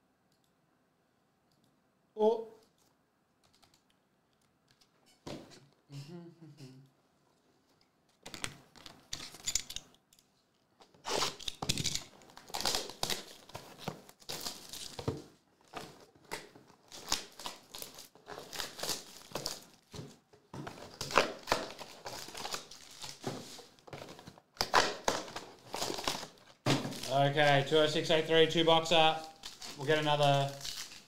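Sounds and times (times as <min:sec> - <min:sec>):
plastic shrink wrap tearing: 0:11.0 - 0:13.5, 0:16.9 - 0:19.7, 0:29.2 - 0:31.0.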